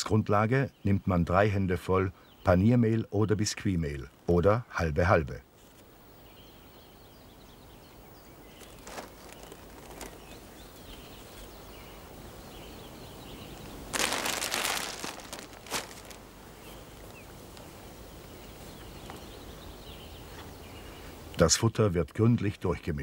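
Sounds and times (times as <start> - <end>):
faint birdsong: 0.0 - 23.0
plastic bags rustling: 8.6 - 11.0, 13.8 - 17.7.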